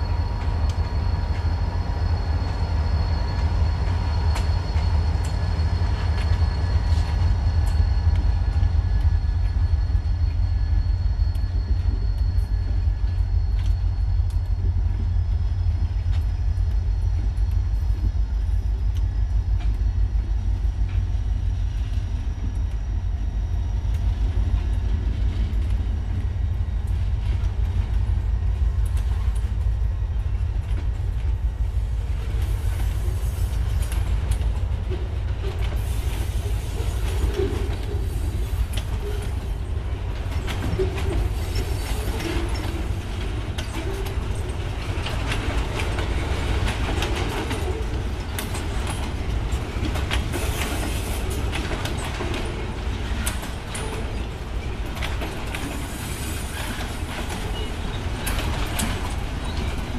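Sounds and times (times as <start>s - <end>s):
diesel locomotive engines: 0.0s - 59.9s
train wheels clattering over rail joints: 24.3s - 59.9s.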